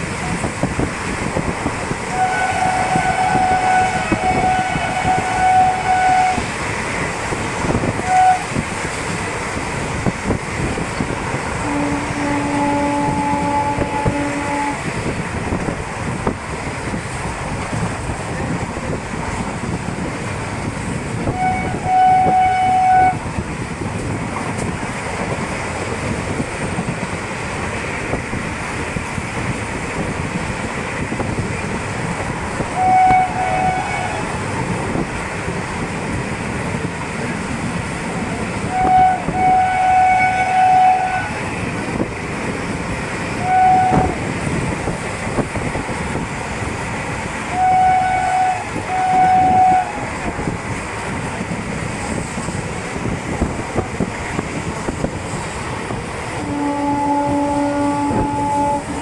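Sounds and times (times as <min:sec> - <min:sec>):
train rumble and wheel clatter: 0:00.0 - 0:59.0
locomotive horn: 0:02.1 - 0:06.5, 0:07.9 - 0:08.6, 0:11.6 - 0:15.0, 0:21.2 - 0:23.3, 0:32.7 - 0:34.4, 0:38.6 - 0:41.6, 0:43.3 - 0:44.2, 0:47.5 - 0:50.3, 0:56.4 - 0:59.0.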